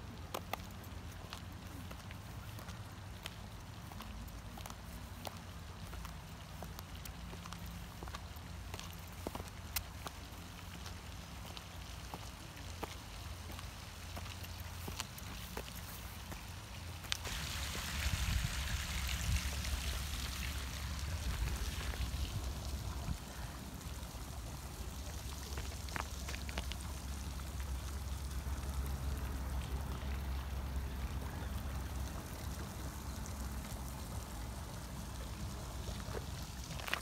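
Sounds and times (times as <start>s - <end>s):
footsteps on gravel: 0.1s - 28.7s, 34.9s - 37.0s
wind rumble on microphone: 17.6s - 24.1s.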